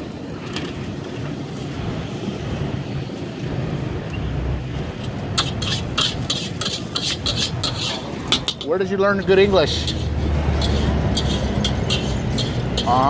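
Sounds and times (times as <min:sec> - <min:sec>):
street traffic rumble: 0:00.0 - 0:13.0
metal spatula scraping wok: 0:05.3 - 0:13.0.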